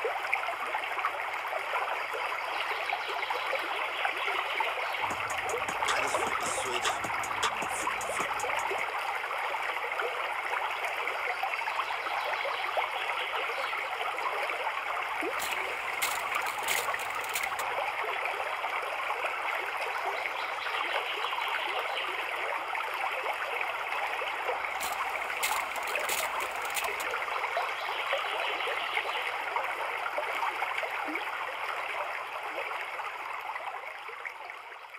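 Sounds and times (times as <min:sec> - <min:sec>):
running water: 0:00.0 - 0:34.8
spray bottle hissing spritzes: 0:05.1 - 0:08.7, 0:15.4 - 0:17.6, 0:24.8 - 0:27.0.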